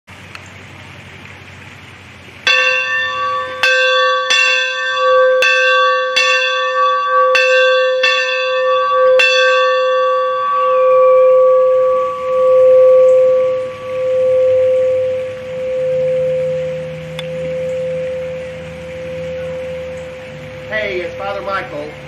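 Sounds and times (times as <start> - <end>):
church bell ringing: 2.5 - 22.0.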